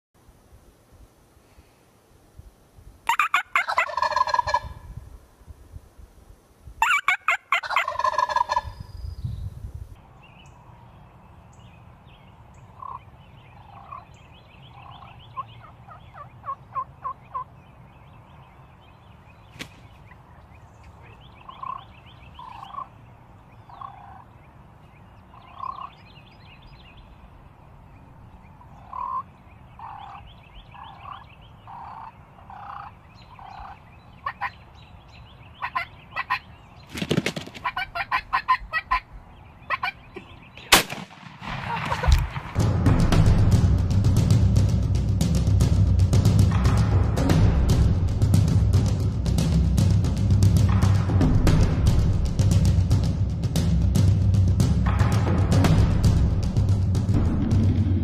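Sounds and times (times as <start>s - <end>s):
turkey short calls: 3.1s - 4.7s, 6.8s - 8.7s, 39.7s - 40.8s
turkeys gobbling: 3.1s - 4.8s, 6.8s - 8.8s, 12.8s - 13.0s, 13.6s - 14.1s, 14.7s - 17.5s, 21.0s - 22.9s, 23.7s - 24.3s, 25.3s - 26.0s, 28.8s - 30.2s, 30.8s - 34.6s, 35.6s - 36.5s, 37.2s - 39.1s, 39.7s - 40.9s, 41.5s - 42.4s.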